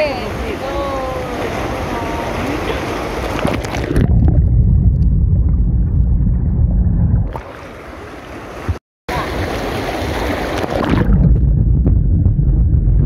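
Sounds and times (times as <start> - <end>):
pool water splashing: 0.0 - 4.3, 7.3 - 11.2
underwater rumbling and bubbling: 1.3 - 13.0.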